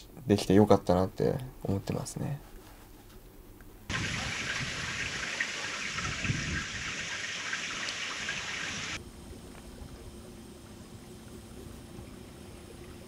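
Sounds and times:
faint steady hum: 0.0s - 13.0s
water hissing: 3.9s - 9.0s.

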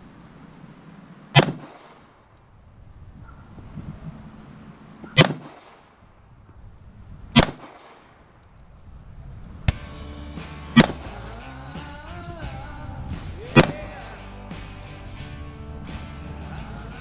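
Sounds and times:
pistol shots with echo: 1.3s - 2.2s, 5.1s - 6.0s, 7.4s - 8.3s, 13.5s - 13.9s
background music: 9.7s - 17.0s.

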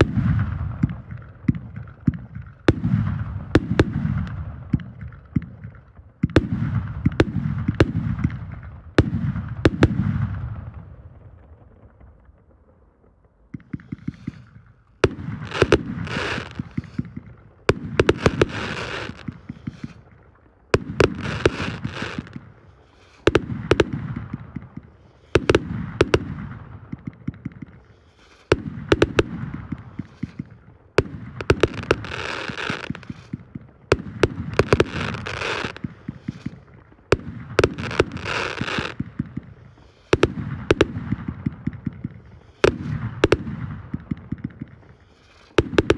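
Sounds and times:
fireworks crackling: 0.0s - 45.9s
firework launch bangs: 13.6s - 20.0s.

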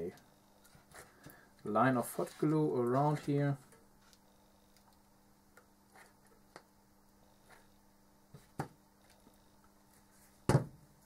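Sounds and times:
knock on workbench: 10.5s - 10.8s.

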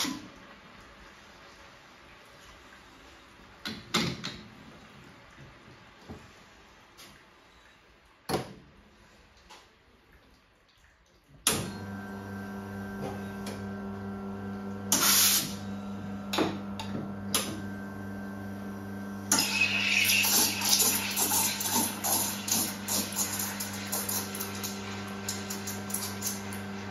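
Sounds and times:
espresso pump humming: 11.8s - 26.9s
short loud hiss: 14.9s - 15.6s.

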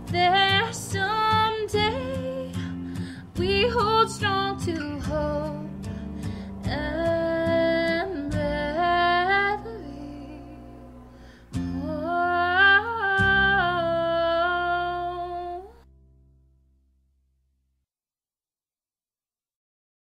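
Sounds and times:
strummed acoustic guitar: 0.0s - 16.2s.

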